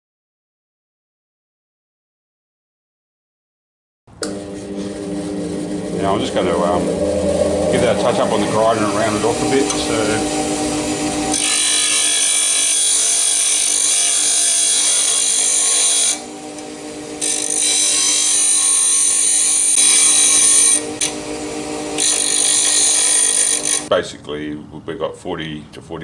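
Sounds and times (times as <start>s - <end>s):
grinder motor hum: 4.2s - 23.9s
grinder wheel hissing on metal: 4.2s - 23.9s.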